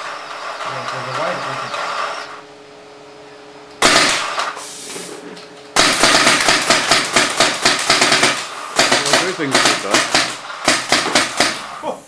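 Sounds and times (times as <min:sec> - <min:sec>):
paintball markers firing: 0:05.8 - 0:11.7.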